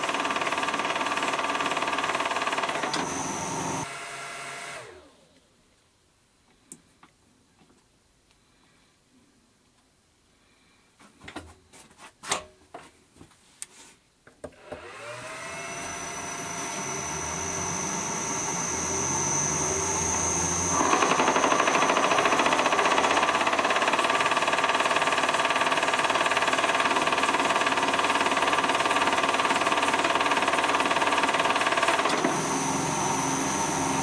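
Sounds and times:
lathe chuck spinning: 0.0 - 3.9, 15.2 - 34.0
lathe motor whine: 0.0 - 5.3, 14.6 - 34.0.

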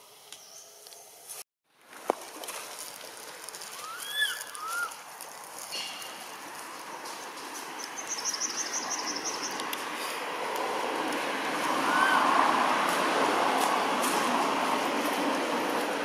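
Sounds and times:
rushing noise: 10.1 - 16.0.

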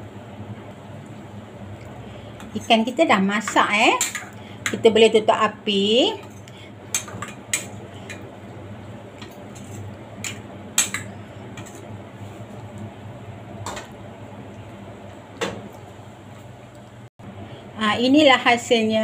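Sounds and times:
steady low hum: 0.0 - 19.0
metal spoon clinking on a pot: 3.5 - 4.8.

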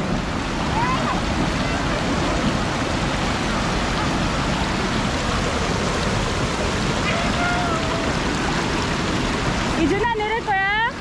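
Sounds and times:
white water rushing: 0.0 - 11.0.

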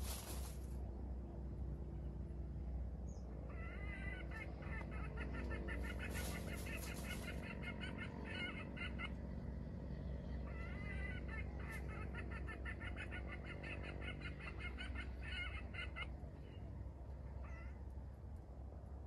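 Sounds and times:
low background hum: 0.0 - 19.0
chicken clucking: 3.5 - 9.3, 10.3 - 16.7.

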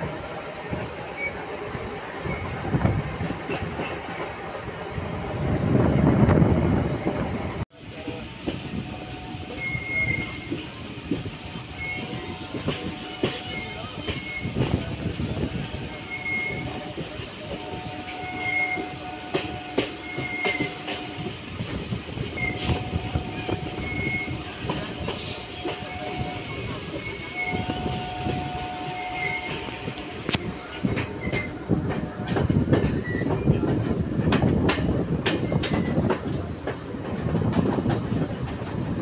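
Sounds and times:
loud train rumble: 0.0 - 39.0
high wheel squeals: 22.3 - 29.6, 30.3 - 34.1
train wheels clattering over rail joints: 29.4 - 39.0.

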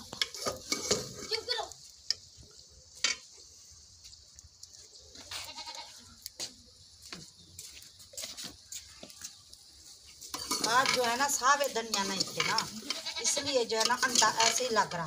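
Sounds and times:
goat bleating faintly: 5.3 - 6.2.

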